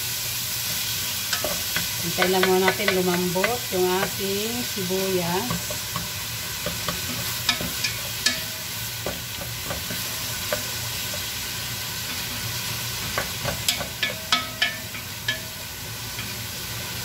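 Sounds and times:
onions sizzling in oil: 0.0 - 17.0
spoon knocking against pot: 1.3 - 4.2, 5.4 - 10.7, 13.1 - 15.5.

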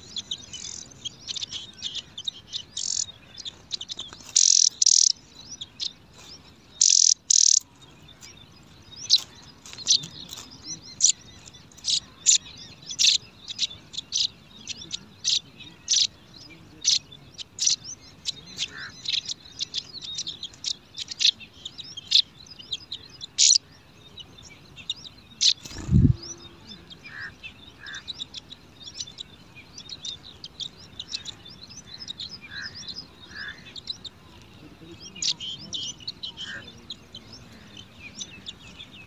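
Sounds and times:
short high bird chirps: 4.3 - 5.2, 6.8 - 7.6, 25.5 - 26.4.

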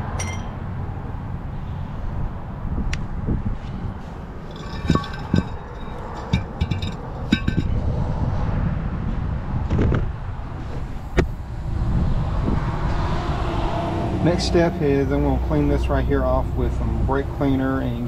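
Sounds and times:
metal parts clinking: 4.5 - 7.8.

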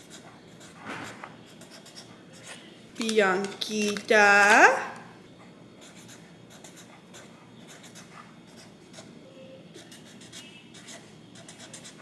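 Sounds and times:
marker scratching on paper: 0.0 - 2.6, 5.8 - 12.0.

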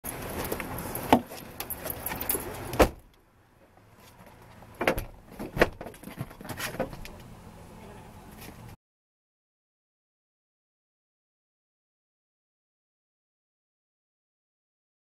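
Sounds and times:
keys jangling: 0.1 - 2.8
car door shutting: 2.0 - 3.0.

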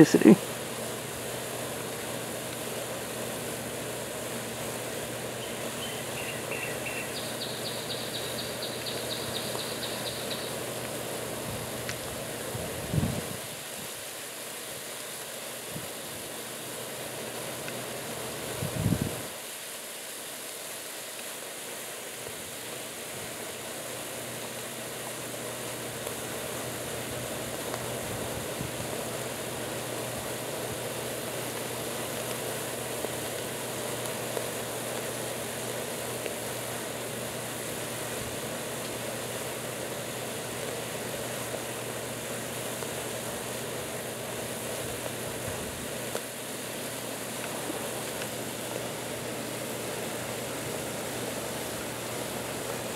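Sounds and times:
brine bubbling and fizzing: 21.3 - 52.9.

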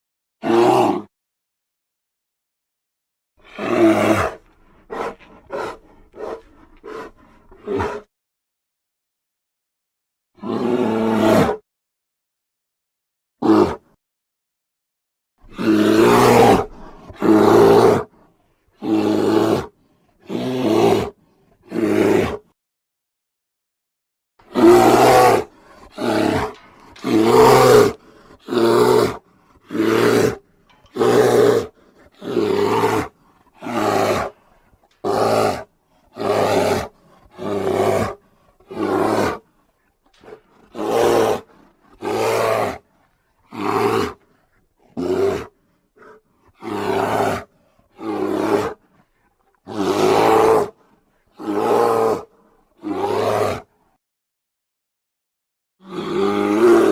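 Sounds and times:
bear roars: 0.4 - 1.1, 3.4 - 8.1, 10.4 - 11.6, 13.4 - 14.0, 15.5 - 18.2, 18.8 - 22.5, 24.4 - 53.7, 55.8 - 56.9.

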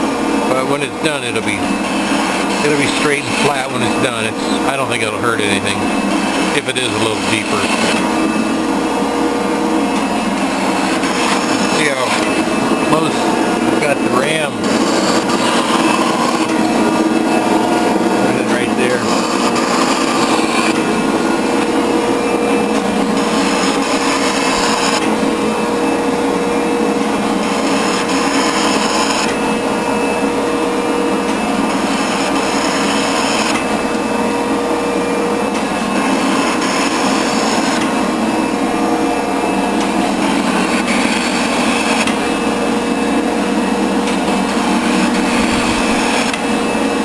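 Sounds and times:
metal shaper machine drone: 0.0 - 47.0
shaper ram cutting stroke: 9.9 - 22.0, 22.7 - 25.2.

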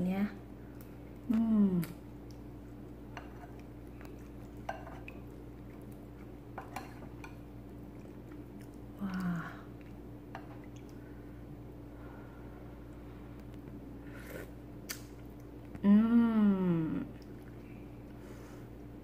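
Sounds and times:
steady low hum: 0.0 - 19.0
person humming mm: 15.8 - 17.2.

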